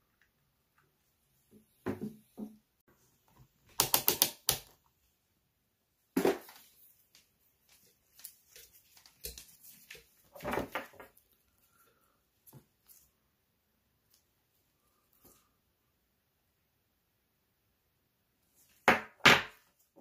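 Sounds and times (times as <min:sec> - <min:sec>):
gloved hands handling objects: 0:06.2 - 0:13.2.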